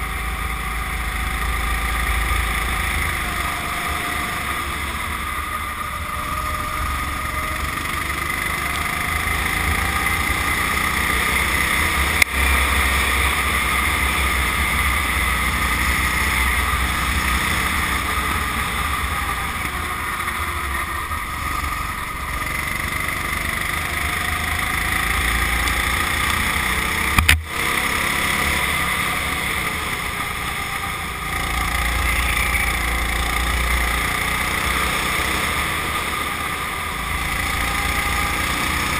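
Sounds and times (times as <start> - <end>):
go-kart engine: 0.0 - 38.9
sharp knocks: 27.2 - 27.5.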